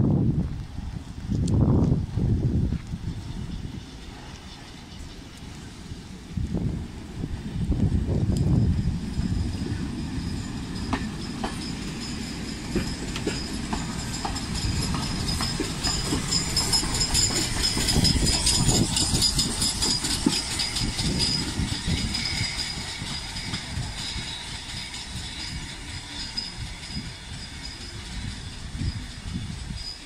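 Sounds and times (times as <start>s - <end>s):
train rumble: 0.0s - 30.0s
wheels clicking over rail joints: 9.4s - 29.0s.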